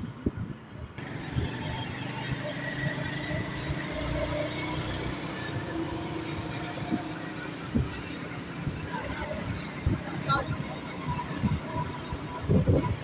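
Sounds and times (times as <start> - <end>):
road and wind noise: 0.0 - 13.0
motorcycle engine running: 1.0 - 13.0.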